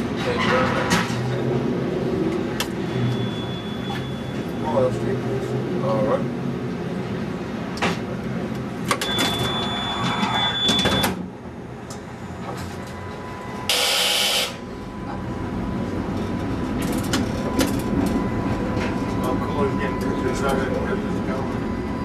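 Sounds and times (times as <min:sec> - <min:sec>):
streetcar running rumble: 0:00.0 - 0:22.0
high electronic beep: 0:02.8 - 0:04.6, 0:09.0 - 0:11.2.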